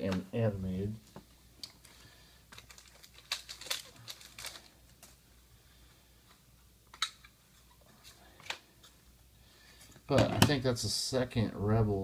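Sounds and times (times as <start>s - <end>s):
trading cards rustling and clicking: 1.0s - 5.2s.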